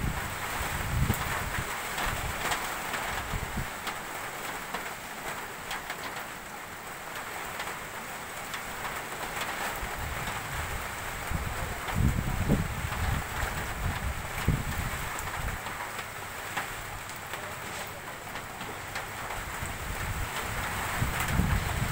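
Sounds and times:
wind rumble on microphone: 0.0 - 3.8, 9.8 - 15.8, 19.2 - 21.9
rain on a metal roof: 0.0 - 21.9.

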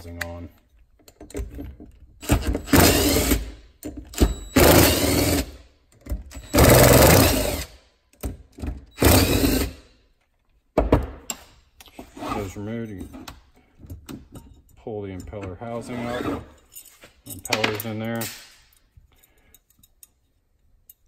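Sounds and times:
cordless drill running: 2.3 - 3.4, 4.5 - 5.5, 6.4 - 7.7, 9.0 - 9.8.

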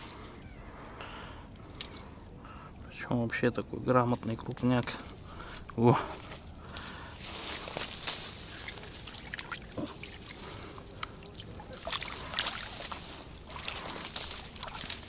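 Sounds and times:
dry reeds rustling: 0.0 - 0.9, 4.0 - 15.0
water splashing and trickling: 6.9 - 15.0.

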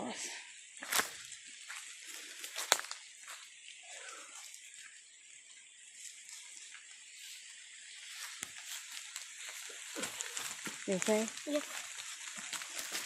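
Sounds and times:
rain falling on leaves: 0.0 - 13.0
footsteps rustling through wet leaves: 0.1 - 13.0.

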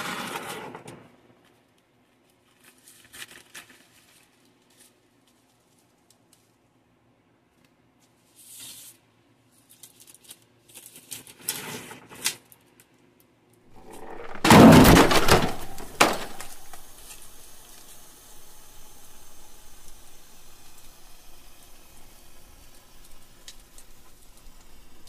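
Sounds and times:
faint crackle of plastic bag: 0.0 - 6.7, 7.5 - 13.2, 13.8 - 25.0
plastic packaging crinkling: 13.8 - 25.0.

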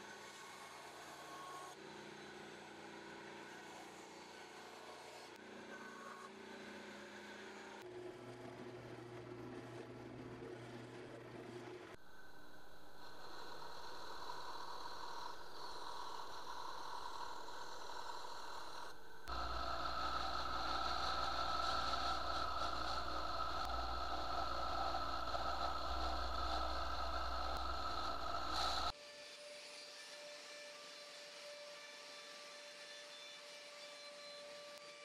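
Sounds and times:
low hum: 12.0 - 28.9.

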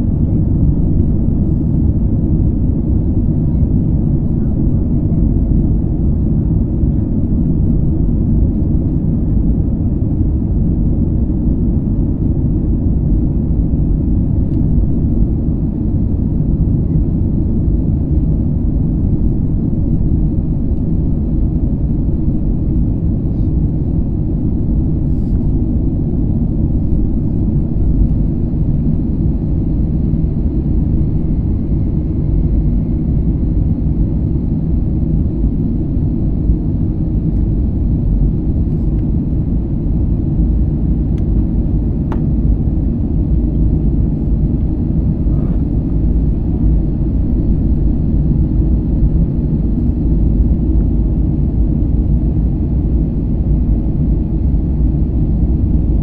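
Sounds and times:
jet engines rumbling in cabin: 0.0 - 56.0.

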